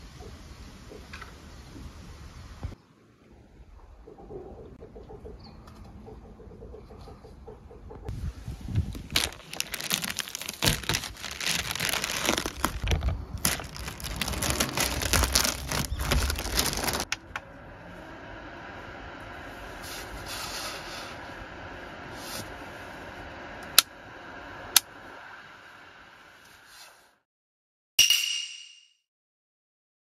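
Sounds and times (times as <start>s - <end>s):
paper crinkling and tearing: 8.9s - 17.1s.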